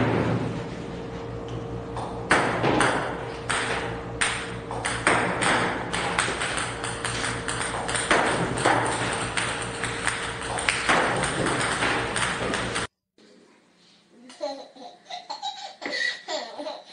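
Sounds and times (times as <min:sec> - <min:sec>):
table tennis balls striking table: 0:02.0 - 0:12.9.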